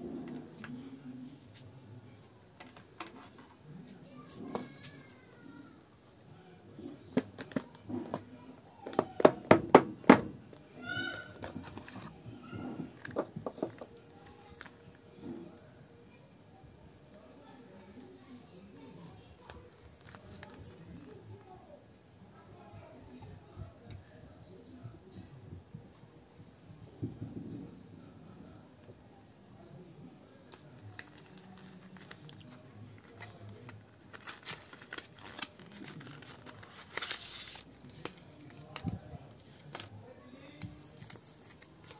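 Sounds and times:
knocks on cardboard box: 9.2 - 10.3
card sleeve rustling and crinkling: 19.4 - 21.1, 30.5 - 41.9
scattered crackles: 30.4 - 41.9.

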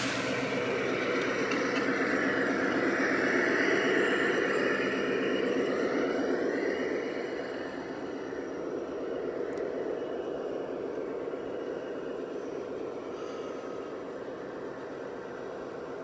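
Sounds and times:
model locomotive running: 0.0 - 16.0.

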